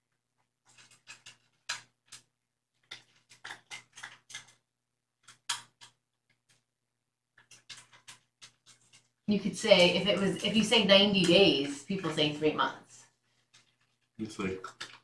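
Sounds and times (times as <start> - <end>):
scratchy clicks and taps: 0.7 - 4.6, 5.2 - 6.6, 7.4 - 12.7, 14.5 - 15.0.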